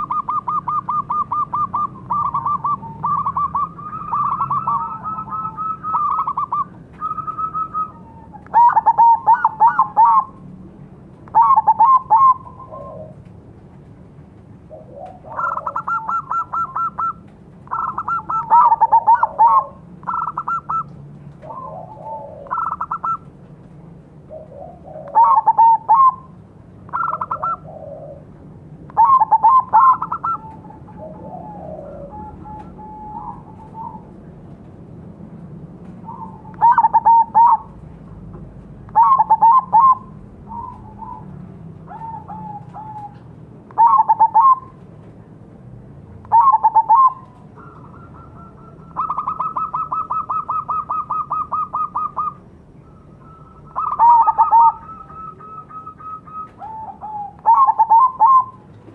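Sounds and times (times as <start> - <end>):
doves cooing: 0.0 - 10.6, 11.2 - 13.4, 14.6 - 23.6, 24.2 - 34.5, 35.8 - 44.9, 46.3 - 58.9.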